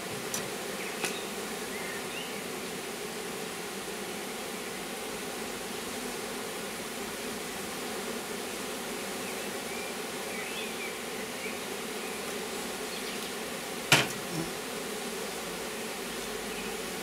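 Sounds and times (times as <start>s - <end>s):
honeybees buzzing: 0.0s - 17.0s
sharp knock: 13.9s - 14.2s.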